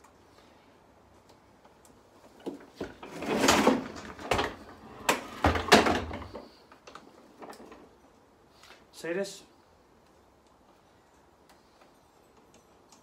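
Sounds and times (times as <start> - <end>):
handling knocks and rustling: 1.6 - 8.9.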